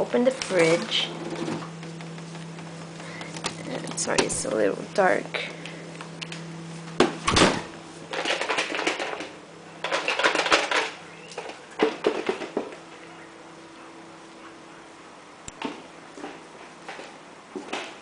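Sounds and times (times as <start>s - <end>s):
clattering and rustling at fridge: 0.0s - 5.6s, 6.8s - 13.0s
steady low hum: 0.0s - 18.0s.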